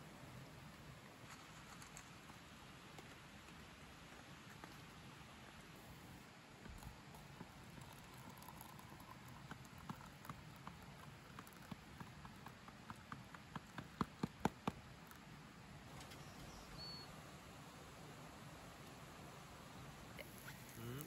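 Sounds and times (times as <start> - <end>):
water stream pouring: 6.7 - 12.5.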